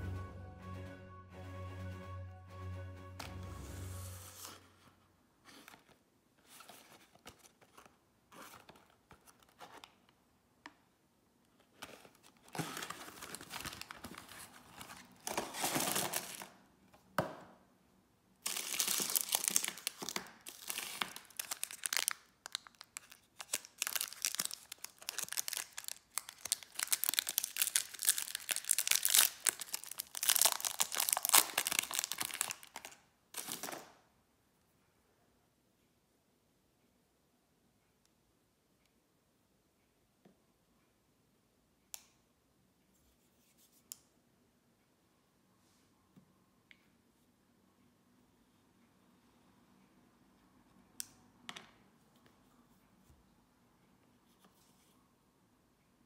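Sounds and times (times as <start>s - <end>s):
foil wrappers crinkling: 18.5s - 33.7s
packaging tearing: 18.5s - 33.7s
packaging clicks: 18.5s - 33.8s.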